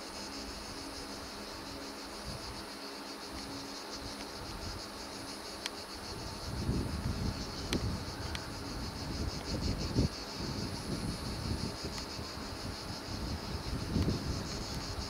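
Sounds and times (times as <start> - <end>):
insects chirping: 0.0 - 15.0
wind rumble on microphone: 1.7 - 2.8, 5.8 - 15.0.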